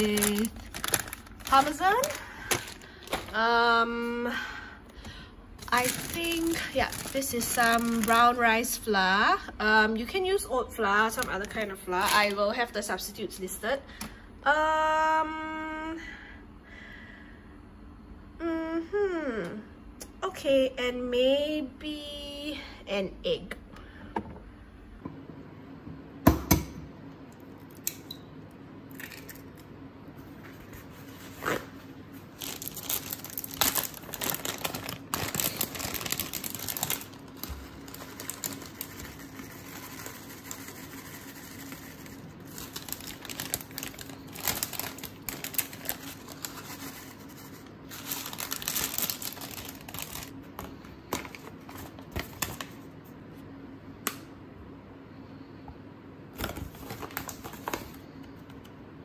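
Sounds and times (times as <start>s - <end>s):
plastic packets rustling: 0.0s - 3.5s, 5.0s - 8.8s, 10.9s - 12.6s, 32.3s - 52.9s, 56.4s - 58.2s.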